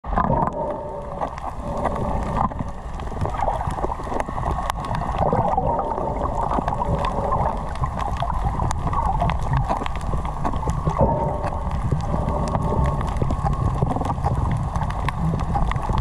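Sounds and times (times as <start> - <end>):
underwater water rush: 0.0 - 16.0
faint sharp clicks: 6.3 - 16.0.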